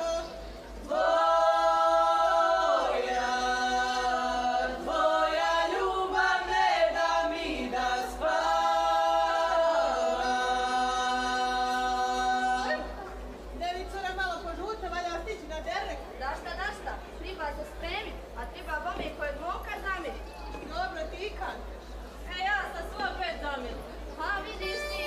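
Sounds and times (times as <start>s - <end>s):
women's group singing unaccompanied: 0.0s - 13.3s.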